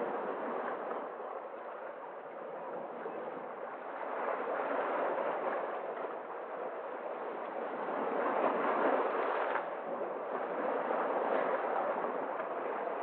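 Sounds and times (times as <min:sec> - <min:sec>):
waves breaking over rocks: 0:00.0 - 0:13.0.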